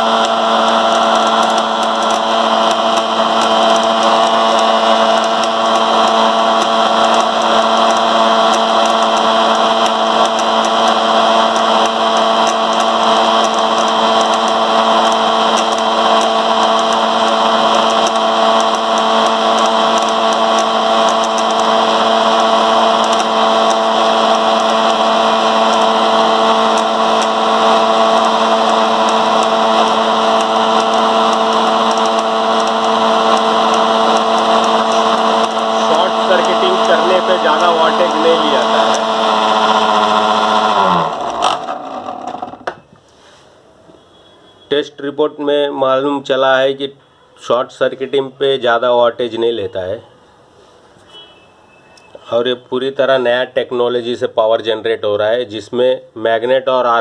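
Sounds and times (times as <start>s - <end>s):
electric motor humming and whirring: 0.0s - 42.8s.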